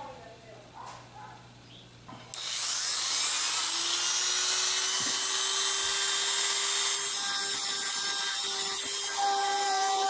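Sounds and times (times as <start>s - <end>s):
rotary tool cutting wood: 2.3s - 10.0s
rotary tool motor tone: 2.3s - 10.0s.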